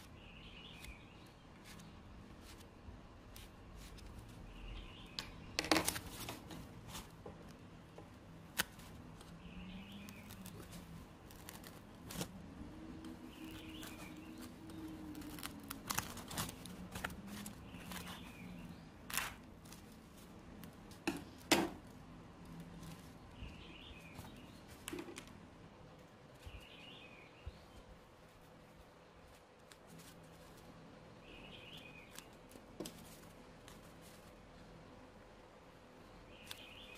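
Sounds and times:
scissors snipping foam: 8.5s - 9.3s, 10.0s - 12.3s, 13.0s - 18.3s, 19.1s - 19.9s.

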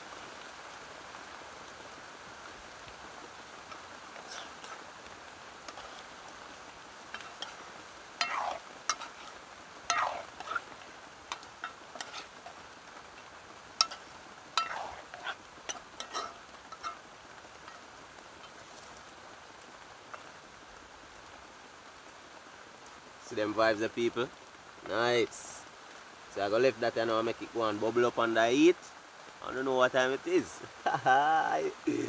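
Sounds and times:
steady rain: 0.0s - 32.0s
utensil scraping in cooking pot: 3.6s - 18.9s.

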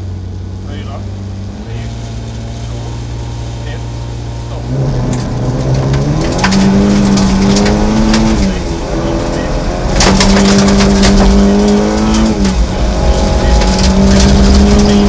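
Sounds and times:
rally car engine revving: 0.0s - 15.0s
gravel striking car: 4.6s - 15.0s.

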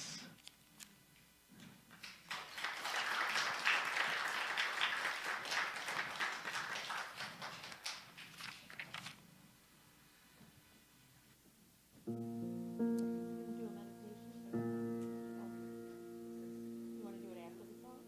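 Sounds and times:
small audience applauding: 1.9s - 8.9s.

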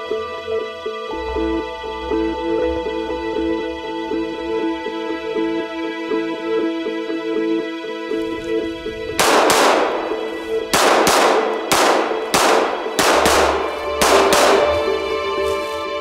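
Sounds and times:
background music: 0.0s - 16.0s
pistol shots echoing: 9.2s - 14.9s.

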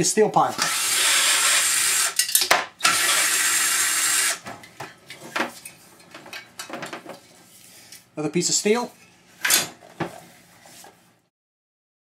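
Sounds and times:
power drill running: 0.5s - 2.2s, 2.8s - 4.4s.

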